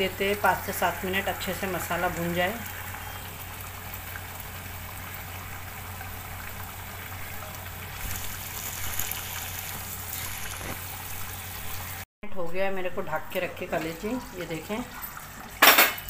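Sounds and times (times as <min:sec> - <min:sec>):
food sizzling in a pot: 0:00.0 - 0:12.1.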